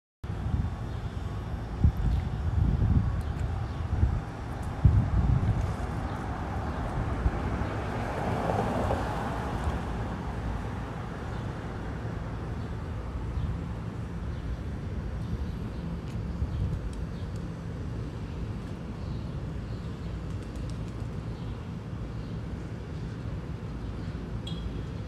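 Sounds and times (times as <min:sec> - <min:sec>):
wind on microphone: 0:01.6 - 0:07.9.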